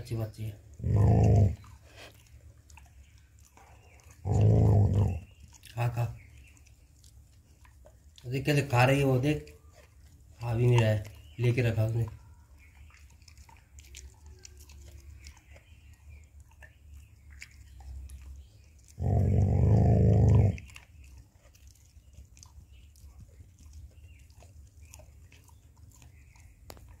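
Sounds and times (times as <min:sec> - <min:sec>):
dog gnawing bone: 0:00.1 - 0:27.0
dog growling: 0:00.8 - 0:02.0, 0:04.2 - 0:05.3, 0:18.9 - 0:20.8.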